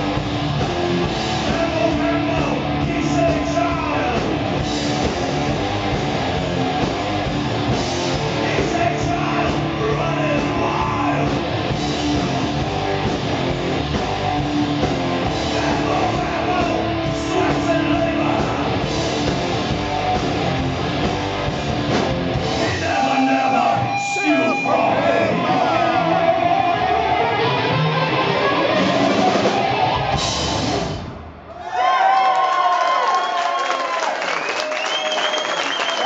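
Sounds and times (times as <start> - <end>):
drum kit: 0.0 - 26.1, 28.6 - 31.5
distorted electric guitar: 0.0 - 31.3
bass guitar: 0.0 - 31.5
person singing: 8.4 - 11.4, 15.4 - 18.8, 22.6 - 29.8.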